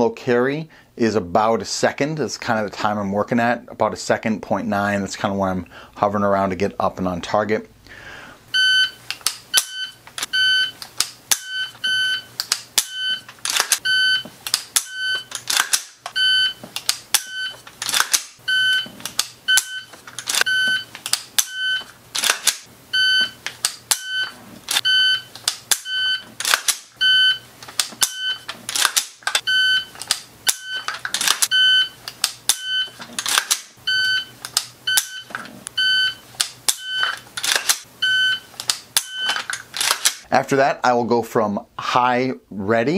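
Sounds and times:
shot timer beeping: 8.6 - 14.2, 14.8 - 15.3, 16.1 - 17.6, 19.5 - 21.9, 23.0 - 26.2, 28.0 - 28.5, 29.4 - 30.9, 31.5 - 33.0, 33.8 - 37.1, 38.0 - 39.4
rifle clicks and knocks: 12.4 - 13.8, 14.4 - 18.4, 20.0 - 21.5, 22.2 - 22.7, 28.7 - 29.4, 30.8 - 31.5, 33.2 - 33.7, 36.4 - 37.9, 38.6 - 40.3.

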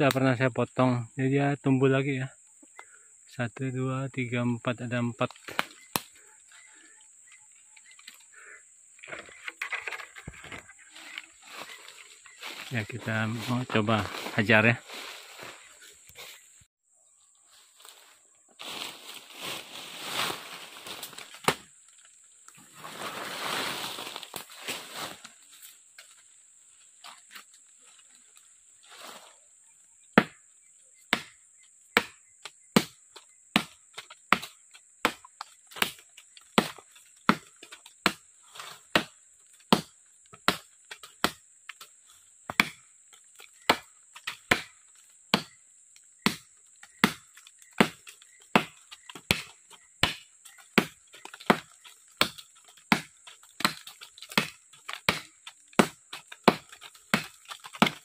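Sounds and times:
machete chopping wood: 5.4 - 6.2, 21.2 - 21.7, 30.2 - 30.5, 31.1 - 38.3, 38.9 - 41.8, 42.5 - 45.6, 46.2 - 58.0.

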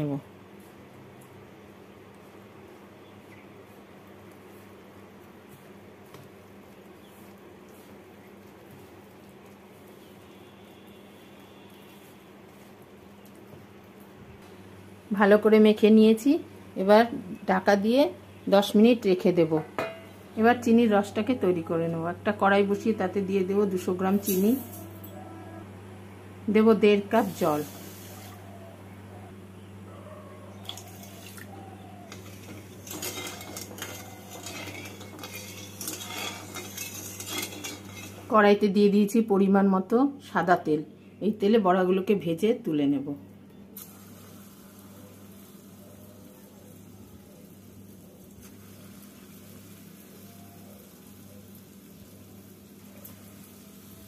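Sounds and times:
fritters sizzling in oil: 32.1 - 38.4
spatula scraping in steel wok: 32.1 - 38.4.

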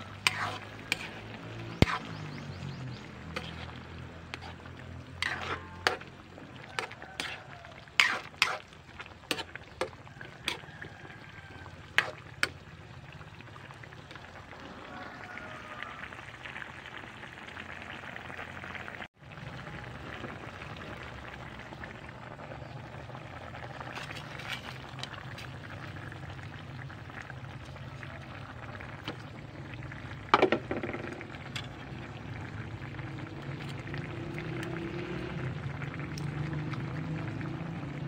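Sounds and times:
broth bubbling in a pan: 0.0 - 38.0.

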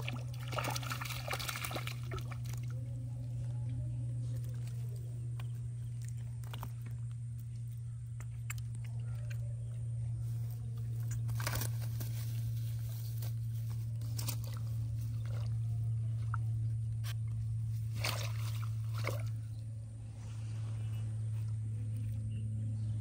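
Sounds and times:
steady low hum: 0.0 - 23.0
crunching rustles: 2.8 - 18.9.

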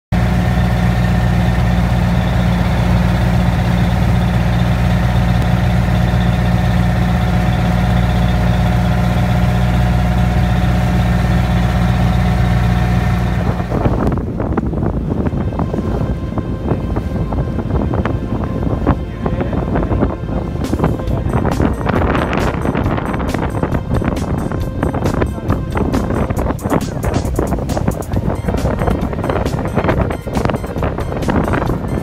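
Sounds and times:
boat engine droning: 0.1 - 32.0.

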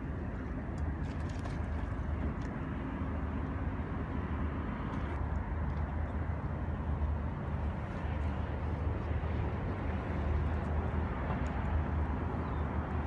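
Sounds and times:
choppy water washing: 0.0 - 5.2
wind rumble on microphone: 0.0 - 13.0.

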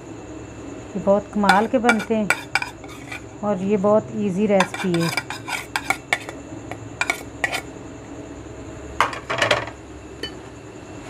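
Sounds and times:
utensils clinking against pot: 1.5 - 3.2, 4.6 - 6.4, 7.0 - 7.6.

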